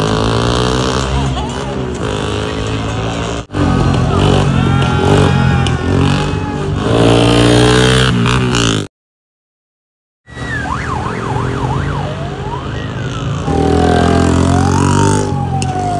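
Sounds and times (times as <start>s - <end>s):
motorcycle engine revving: 0.0s - 8.9s, 13.0s - 15.9s
traffic noise: 0.0s - 8.9s, 10.3s - 15.9s.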